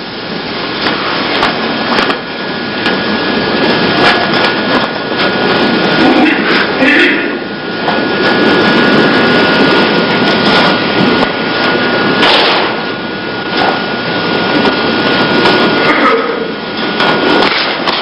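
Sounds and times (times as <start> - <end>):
faint steady whine: 0.0 - 18.0
sharp knocks: 12.2 - 12.8.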